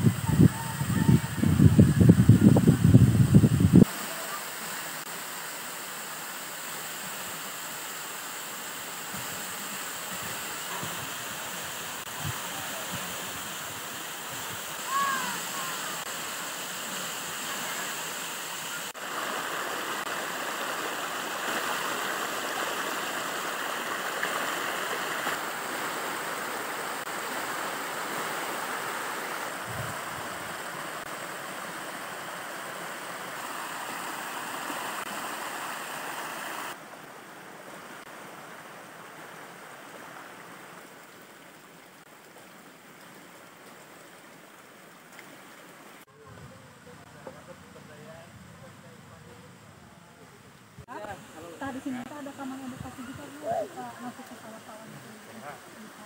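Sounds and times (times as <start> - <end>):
stream rushing over rocks: 0.0 - 46.2, 50.8 - 56.0.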